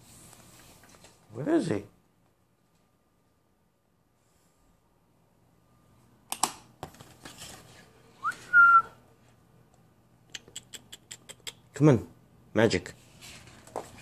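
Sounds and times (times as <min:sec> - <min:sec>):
person whistling for a dog: 0:08.2 - 0:09.0.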